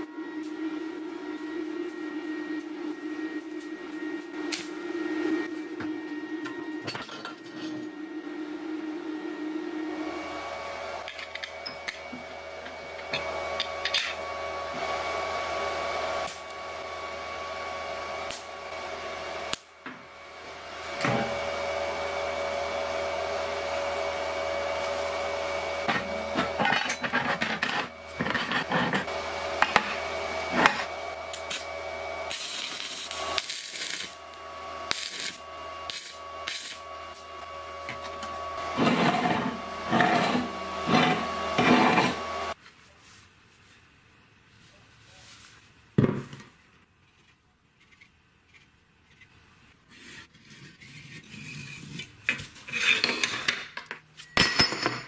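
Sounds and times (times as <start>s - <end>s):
workshop hum: 0.0s - 55.0s
steel parts clinking on workbench: 53.0s - 55.0s.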